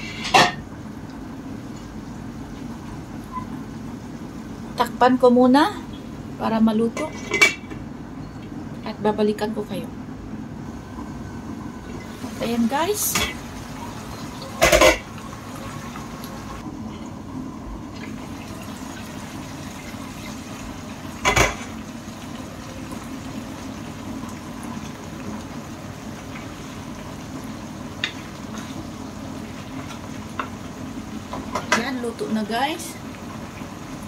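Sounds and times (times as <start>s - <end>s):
pot bubbling: 10.6s - 34.0s.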